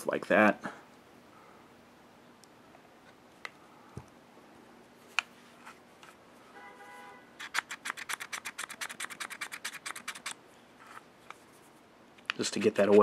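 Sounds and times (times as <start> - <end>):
metallic clicks and scrapes: 7.4 - 11.4.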